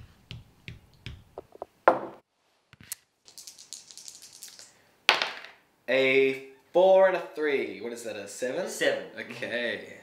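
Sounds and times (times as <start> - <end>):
dice rattling in hand: 3.2 - 5.6.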